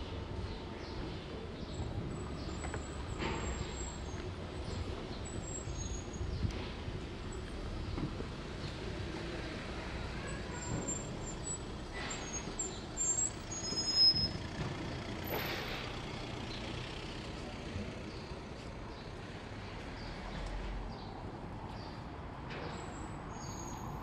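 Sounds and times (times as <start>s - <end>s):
city street traffic: 0.0s - 24.0s
brief high squeal: 12.1s - 14.4s.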